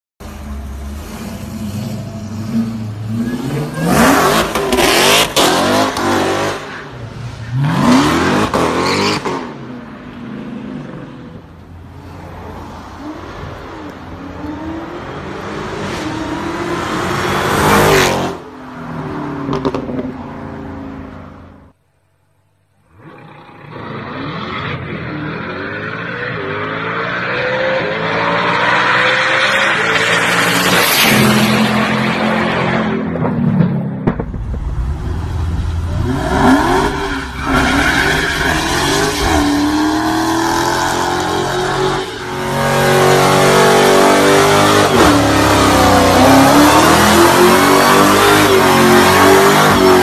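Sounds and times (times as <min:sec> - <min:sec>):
car engine revving and accelerating: 0:00.9 - 0:06.7, 0:34.1 - 0:50.0.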